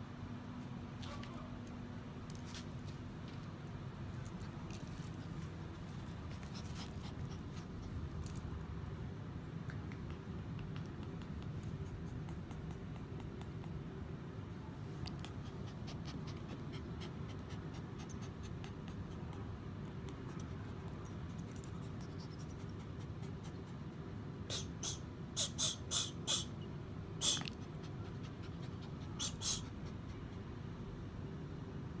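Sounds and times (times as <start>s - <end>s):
steady low hum: 0.0s - 32.0s
small dog sniffing: 4.8s - 8.2s, 9.6s - 14.0s, 14.9s - 26.6s, 27.2s - 30.6s.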